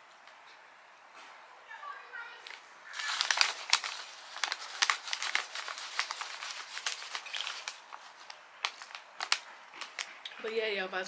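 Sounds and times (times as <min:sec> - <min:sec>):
paper bag crinkling: 0:02.9 - 0:10.2.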